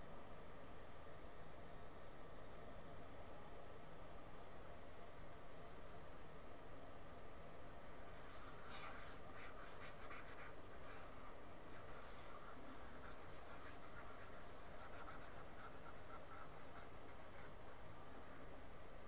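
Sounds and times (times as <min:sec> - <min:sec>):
stylus rubbing on pen tablet: 0:08.2 - 0:18.8.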